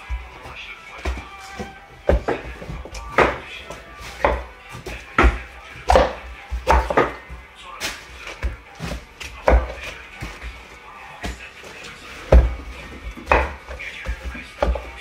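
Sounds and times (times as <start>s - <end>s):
knife chopping on cutting board: 4.2s - 7.3s.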